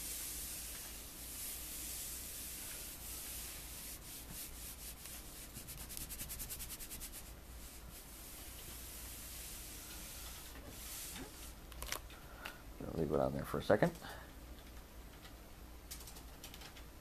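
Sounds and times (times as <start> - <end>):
iron rubbing over a shirt: 0.0 - 11.6.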